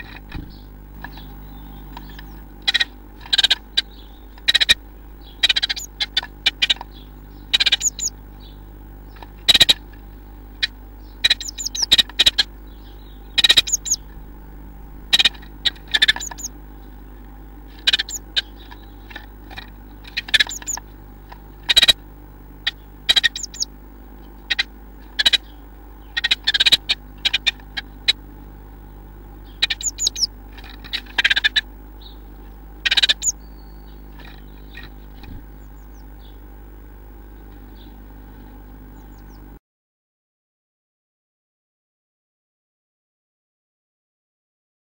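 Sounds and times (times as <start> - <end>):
low electrical hum: 0.0 - 39.6
bird high chirps: 0.3 - 9.9, 10.6 - 17.0, 17.8 - 19.2, 20.0 - 20.8, 22.6 - 23.7, 24.4 - 28.2, 28.8 - 36.5, 37.3 - 39.5.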